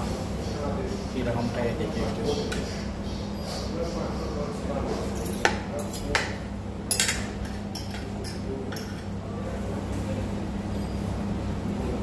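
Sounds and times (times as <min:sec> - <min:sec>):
steady low hum: 0:00.0 - 0:12.0
cutlery clinking on plates: 0:06.9 - 0:09.1.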